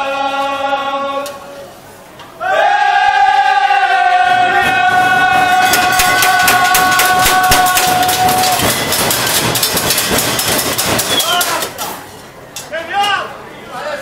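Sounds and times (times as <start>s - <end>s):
men singing a long note: 0.0s - 1.4s, 2.4s - 8.6s
crowd noise: 0.0s - 14.0s
rapid sharp hits: 5.2s - 12.0s.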